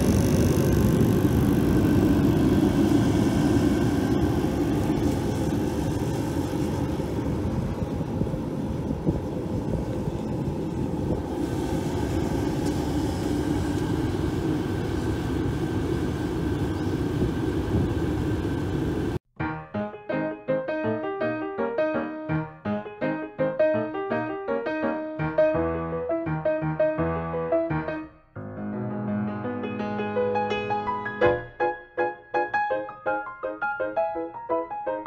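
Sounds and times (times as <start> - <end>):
heater blower fan and burner: 0.0 - 19.2
piano music: 19.4 - 35.0.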